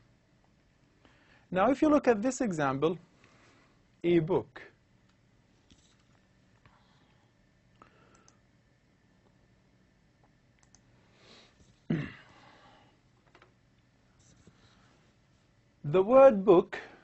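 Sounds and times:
computer mouse clicks: 8.1s - 8.4s, 10.6s - 10.8s.

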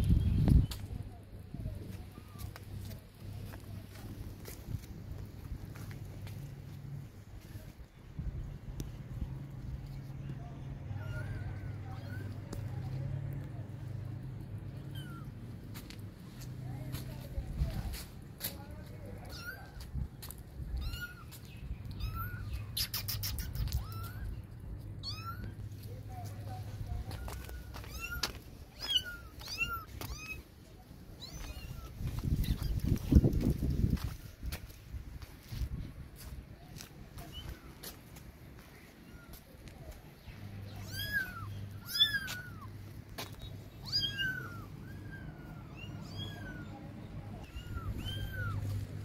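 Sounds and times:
kittens mewing: 40.7s - 42.7s, 43.8s - 46.8s, 47.4s - 48.8s.

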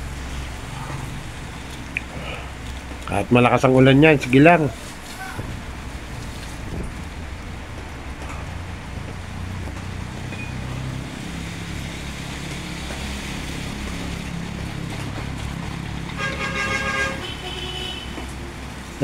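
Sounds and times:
traffic on a wet street: 0.0s - 19.0s
motor scooter engine passing: 4.8s - 19.0s
vehicle horn: 16.2s - 18.3s.

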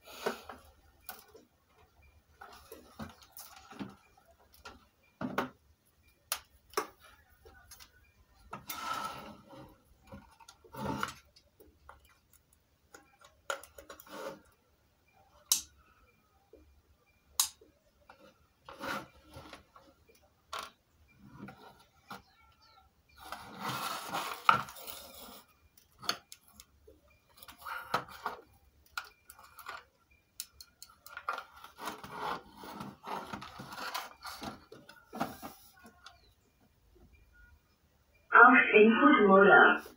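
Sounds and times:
rubbing and scraping: 23.2s - 25.5s, 31.3s - 35.8s.

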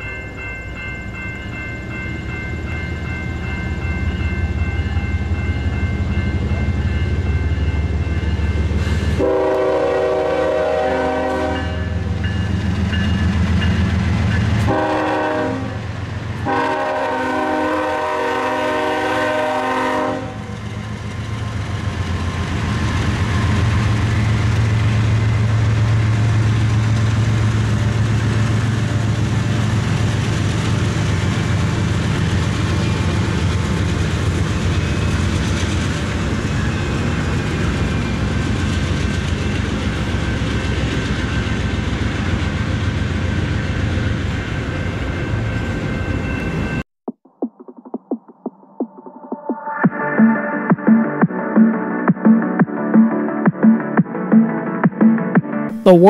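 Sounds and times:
rail cars rumbling and clattering: 0.0s - 46.8s
train horn blasts: 9.2s - 12.0s, 14.6s - 20.6s.

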